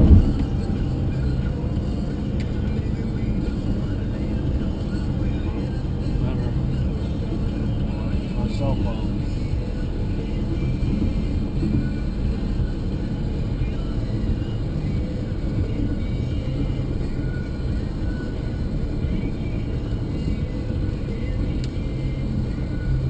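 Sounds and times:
car road and engine noise: 0:00.0 - 0:23.0
faint radio playing: 0:00.0 - 0:23.0.

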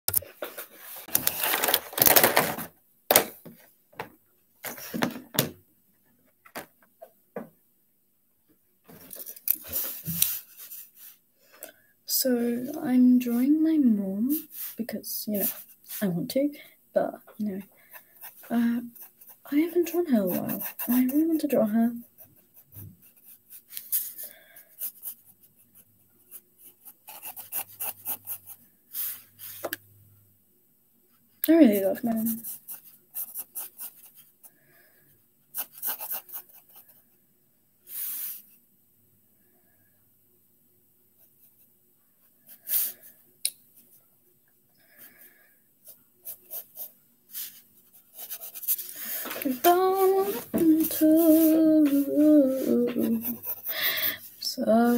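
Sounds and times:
pencil scratching on paper: 0:14.3 - 0:16.1, 0:17.6 - 0:29.6, 0:31.7 - 0:34.3, 0:35.5 - 0:37.0, 0:45.8 - 0:54.9.

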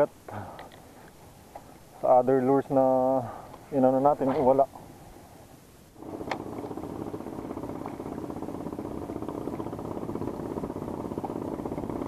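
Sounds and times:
spinning reel gears whirring: 0:06.0 - 0:12.0.

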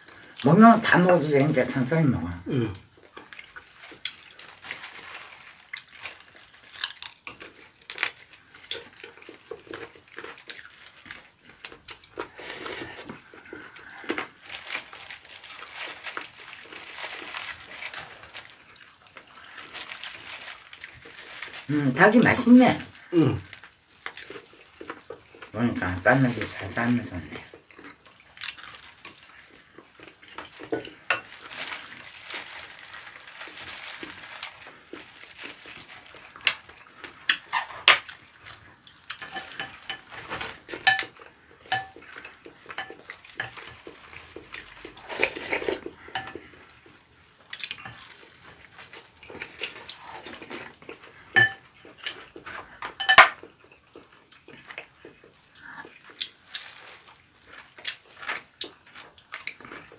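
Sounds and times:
dishes clinking: 0:51.4 - 0:51.6, 0:53.0 - 0:53.4.

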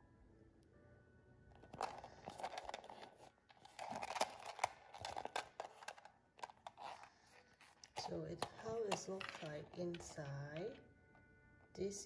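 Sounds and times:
canvas pouch rustling: 0:01.7 - 0:10.3.

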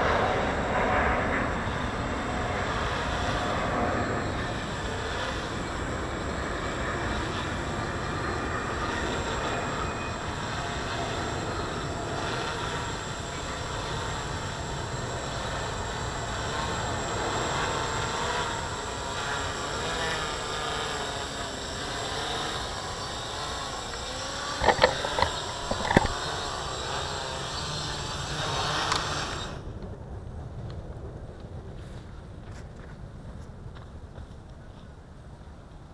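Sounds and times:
drone propellers buzzing: 0:00.0 - 0:30.2
wind rumble on microphone: 0:28.5 - 0:35.9.

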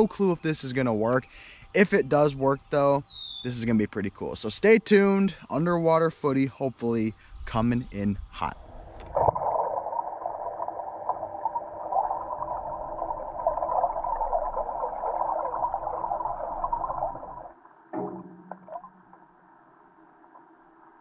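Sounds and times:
underwater crackling and gurgling: 0:08.9 - 0:17.8.

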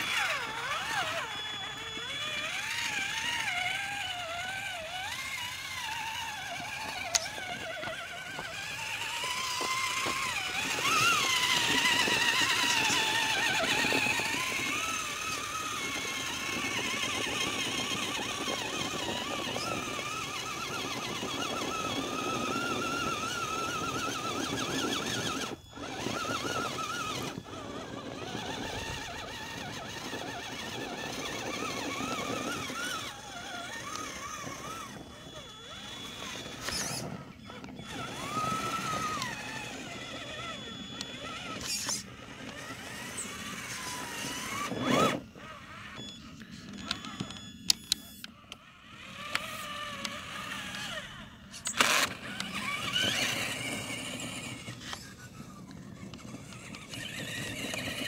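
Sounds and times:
rc truck electric motor whining: 0:00.0 - 0:58.0.

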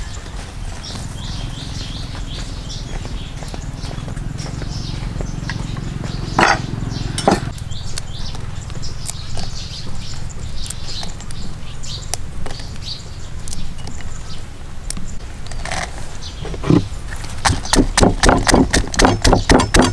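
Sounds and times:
birds chirping: 0:00.0 - 0:19.9
low steady rumble: 0:00.5 - 0:15.5
sharp knocks: 0:05.6 - 0:07.6, 0:16.7 - 0:19.9
small ticks: 0:07.5 - 0:15.1.

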